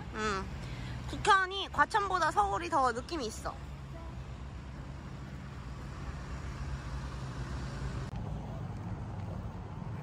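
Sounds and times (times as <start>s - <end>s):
low rumble of road vehicles: 0.0s - 10.0s.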